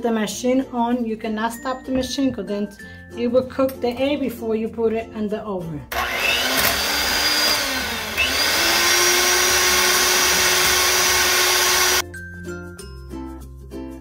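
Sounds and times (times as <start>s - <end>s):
electric hand mixer whisking: 5.9s - 12.0s.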